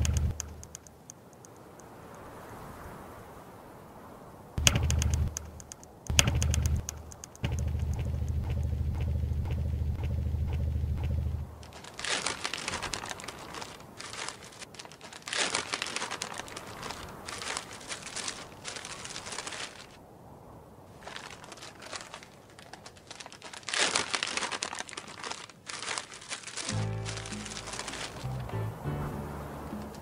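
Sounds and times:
paper crinkling and rustling: 0:11.6 - 0:20.0, 0:20.9 - 0:28.4.

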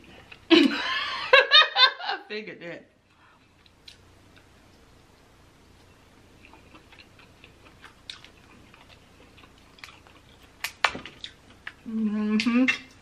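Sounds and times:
chewing: 0:05.8 - 0:11.8.

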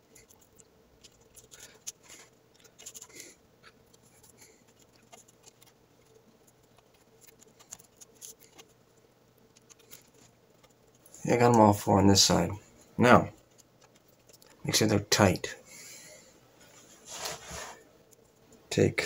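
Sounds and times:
faint cord rustling and ticks: 0:00.0 - 0:15.0.

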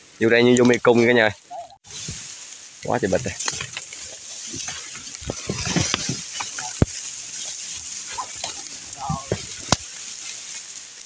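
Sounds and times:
rustle of dry reeds and brush: 0:00.0 - 0:11.0
sharp cracks: 0:08.1 - 0:10.2.

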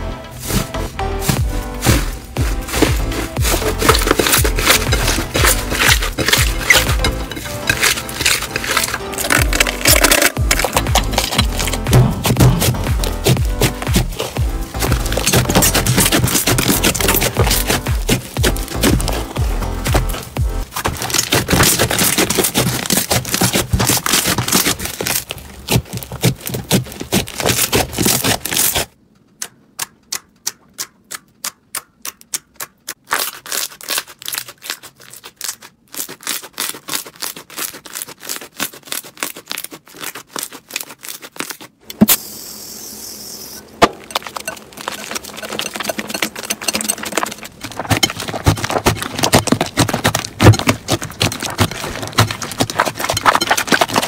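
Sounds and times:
slime crackling and clicking: 0:03.4 - 0:41.7.

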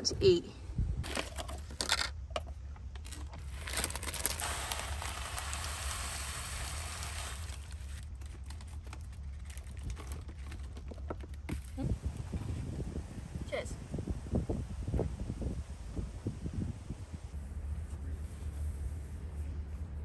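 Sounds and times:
low steady rumble: 0:00.0 - 0:20.0
granola poured from crinkling bag: 0:03.0 - 0:10.4.

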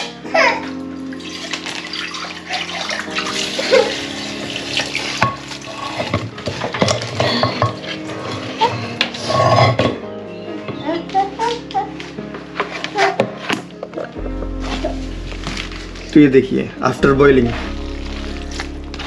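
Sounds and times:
soft background music: 0:00.0 - 0:19.0
running water splashing: 0:00.9 - 0:08.9.

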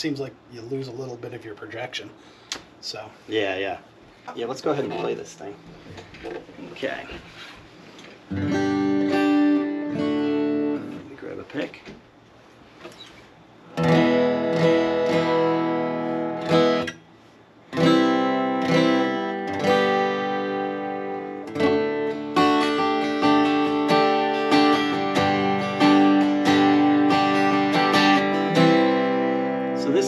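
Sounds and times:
acoustic guitar strumming: 0:08.2 - 0:11.1, 0:13.6 - 0:30.0.

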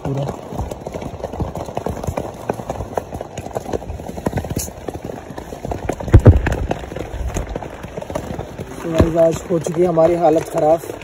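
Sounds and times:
heavy rain on tent: 0:05.0 - 0:11.0.

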